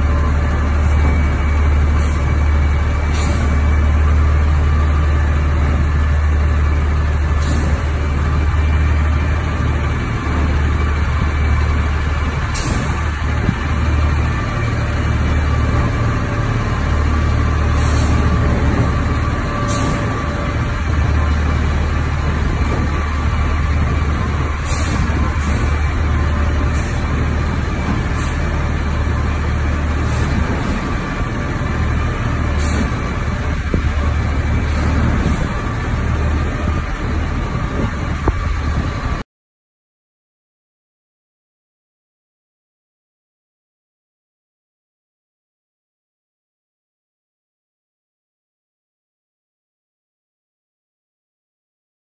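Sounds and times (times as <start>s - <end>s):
garbage truck engine rumbling: 0.0s - 39.2s.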